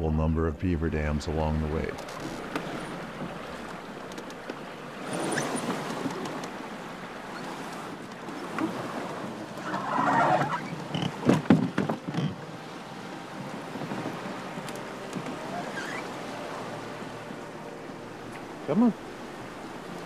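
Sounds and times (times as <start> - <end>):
steady rush of noise: 11.9 - 20.0.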